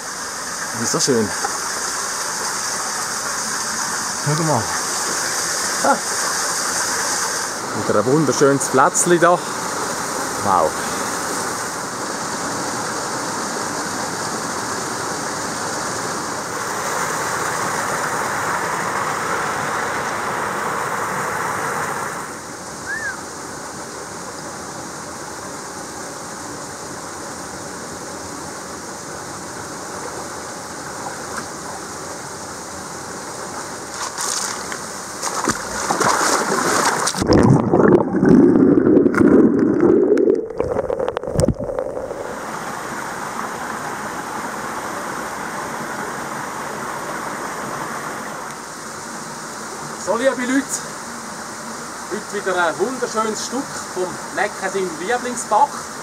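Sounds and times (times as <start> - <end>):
creek water rushing over rocks: 0.0 - 24.7, 25.4 - 56.0
water splashing: 33.9 - 42.7
churning water underwater: 35.3 - 42.8.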